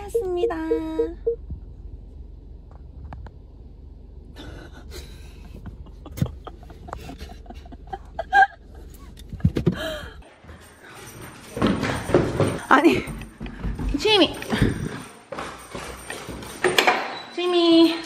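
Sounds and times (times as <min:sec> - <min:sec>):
low hum inside car: 0:00.0 - 0:10.2.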